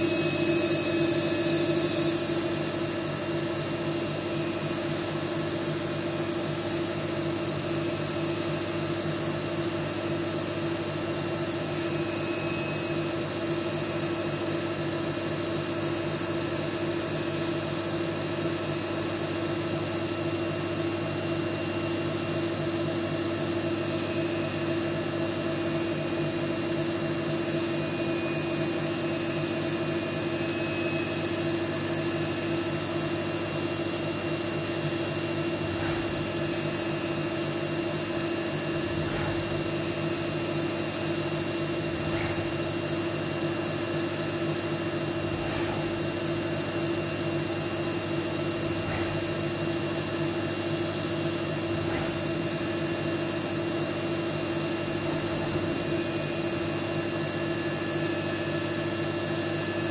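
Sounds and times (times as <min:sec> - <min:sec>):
high spindle whine: 0:00.0 - 0:08.1, 0:11.4 - 0:14.6, 0:23.4 - 0:59.9
milling machine cutting metal: 0:34.8 - 0:57.6.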